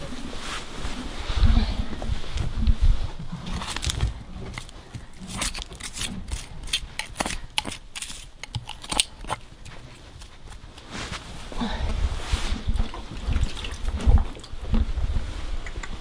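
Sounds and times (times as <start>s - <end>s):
low wind rumble: 0.0s - 6.7s, 11.2s - 16.0s
hooves splashing through water: 12.8s - 14.6s.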